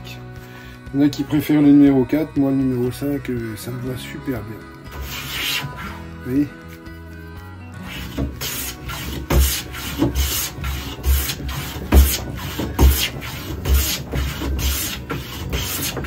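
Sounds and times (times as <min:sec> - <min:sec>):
hand plane shaving wood: 0:04.9 - 0:06.0, 0:07.8 - 0:16.0.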